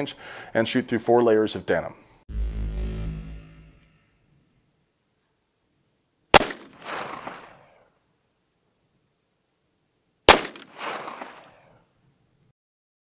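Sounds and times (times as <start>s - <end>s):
pistol shots: 6.4s - 7.7s, 10.3s - 11.6s
gunshot echo off hillside: 6.4s - 7.8s, 10.3s - 11.6s.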